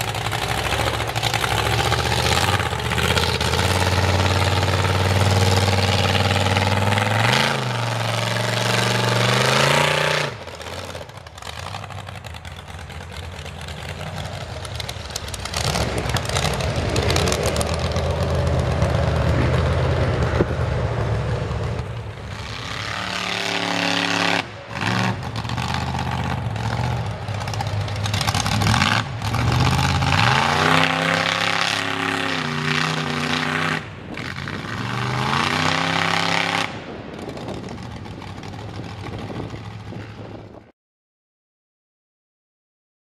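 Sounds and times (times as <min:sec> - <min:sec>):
truck engine revving: 0:00.0 - 0:40.4.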